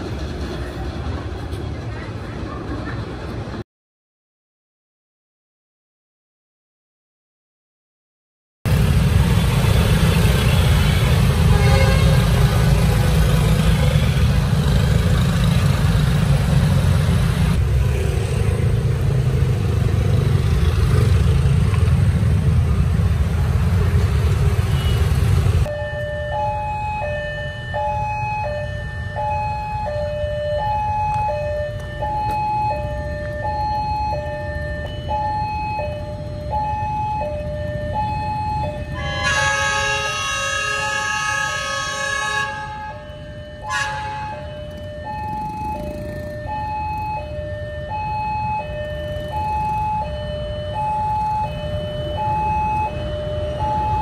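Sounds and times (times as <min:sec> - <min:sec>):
motorcycles and cars running: 0:08.7 - 0:40.4, 0:42.4 - 0:54.0
level crossing two-tone alarm: 0:25.7 - 0:54.0.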